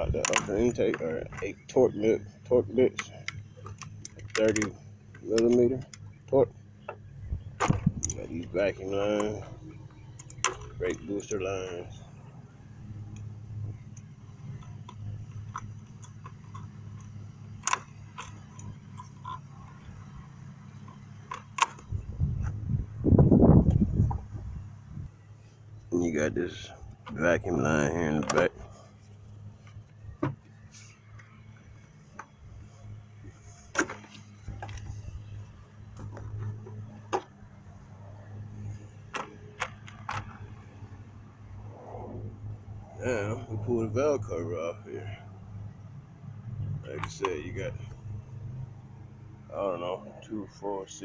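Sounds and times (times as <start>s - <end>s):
steady low hum: 0.0s - 51.0s
hard plastic parts clicking: 0.2s - 1.5s, 2.9s - 7.0s, 10.1s - 11.0s
wrench tapping metal parts: 2.9s - 6.1s.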